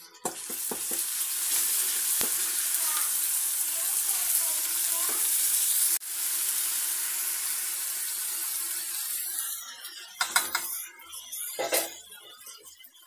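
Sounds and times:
vegetables sizzling in oil: 0:00.0 - 0:12.9.

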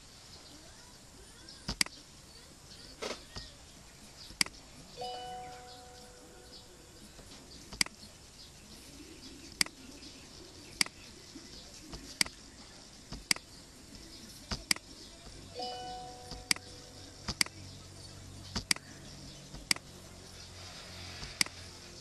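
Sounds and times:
computer mouse clicking: 0:07.7 - 0:08.0, 0:14.5 - 0:14.9, 0:16.3 - 0:17.6, 0:18.5 - 0:19.8, 0:21.2 - 0:21.6.

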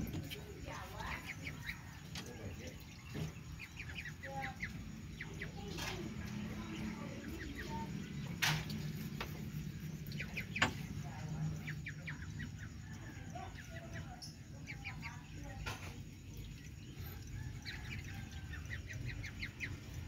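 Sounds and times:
ducklings peeping: 0:00.0 - 0:12.8.

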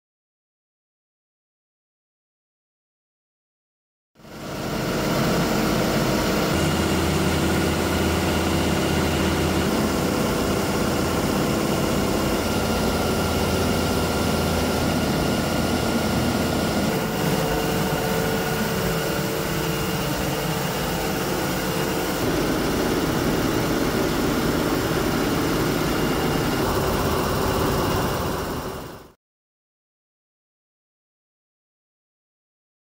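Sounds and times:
electric motor low hum: 0:04.3 - 0:29.1.

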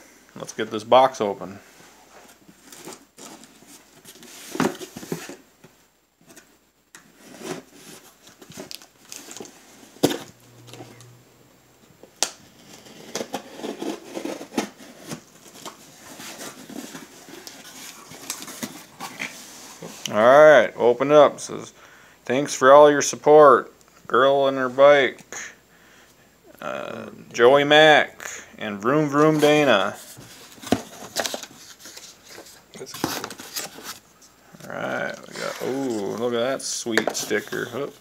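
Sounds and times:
cardboard box rustling and scraping: 0:07.1 - 0:10.9, 0:12.5 - 0:20.0, 0:29.2 - 0:34.1.

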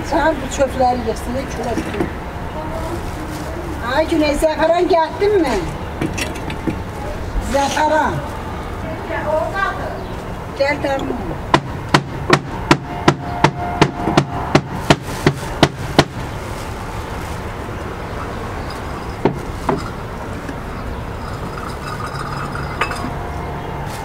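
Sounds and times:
steady background noise: 0:00.0 - 0:24.0
sharp knocks: 0:11.5 - 0:16.2.

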